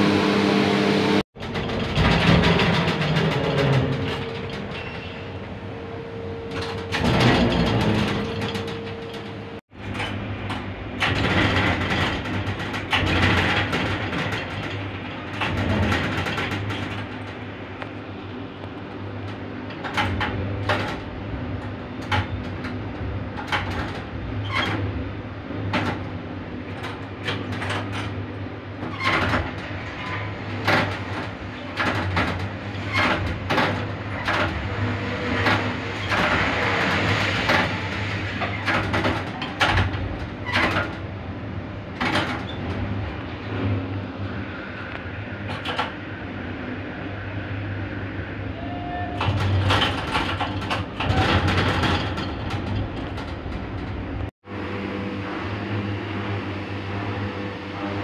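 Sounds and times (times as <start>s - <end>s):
steady low hum: 52.4s - 58.0s.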